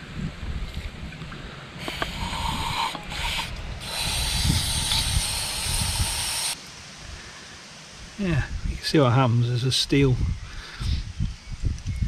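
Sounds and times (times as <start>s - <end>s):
aerosol spray hissing: 1.8s - 6.6s.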